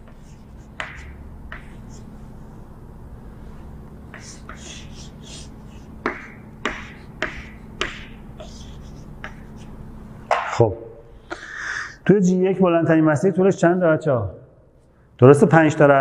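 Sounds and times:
chalk tapping on blackboard: 0.0s - 2.2s, 4.1s - 9.7s
chalk scratching on blackboard: 0.0s - 2.7s, 3.4s - 9.8s
low steady hum: 0.0s - 16.0s.

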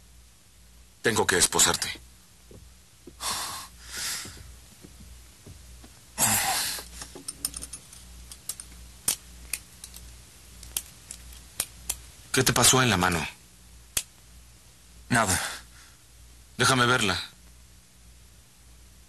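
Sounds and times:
handcuffs clicking shut: 7.0s - 12.0s.

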